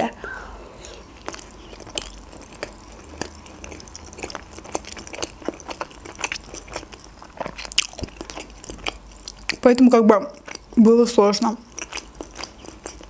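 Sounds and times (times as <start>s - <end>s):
person chewing with wet smacks: 0.8s - 13.0s.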